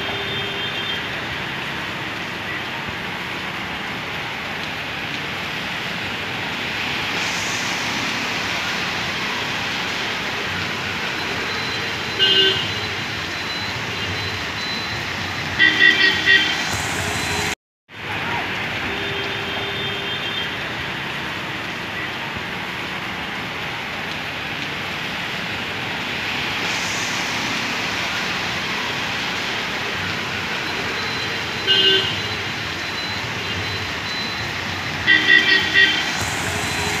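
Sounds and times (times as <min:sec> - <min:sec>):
vehicle horns tooting: 0:00.0 - 0:01.4, 0:11.9 - 0:13.1, 0:15.4 - 0:17.5, 0:18.8 - 0:20.7, 0:30.8 - 0:37.0
rain: 0:00.0 - 0:37.0
traffic on wet road: 0:00.0 - 0:37.0.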